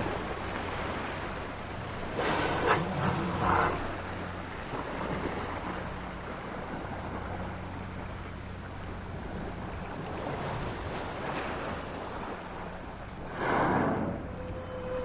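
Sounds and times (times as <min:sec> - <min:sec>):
underwater rush with low hum: 0:00.0 - 0:15.0
killer whale calls: 0:02.0 - 0:04.2, 0:13.3 - 0:15.0.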